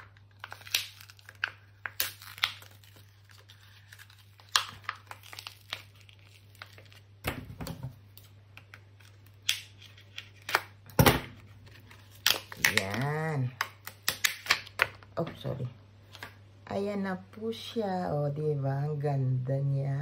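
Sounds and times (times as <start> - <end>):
plastic cup crinkling and tearing: 0.0 - 7.2, 8.1 - 10.8, 11.4 - 15.0
low steady hum: 0.0 - 20.0.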